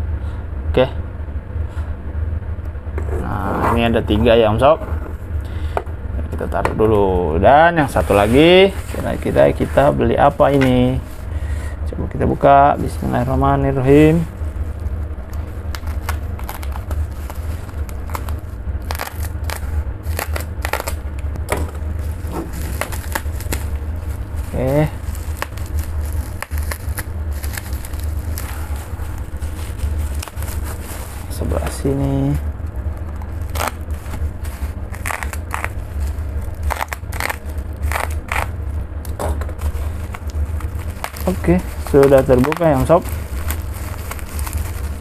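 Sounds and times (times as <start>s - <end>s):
steady low hum: 0.0s - 45.0s
plastic wrap crinkling: 12.9s - 45.0s.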